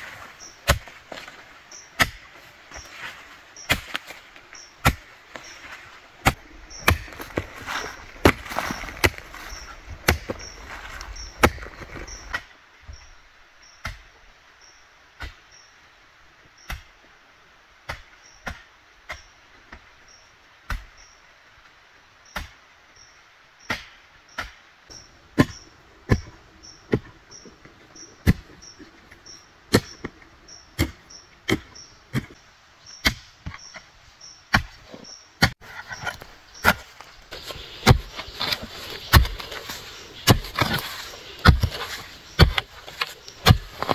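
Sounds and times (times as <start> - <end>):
hoe striking soil: 0.0 - 12.5, 23.7 - 43.9.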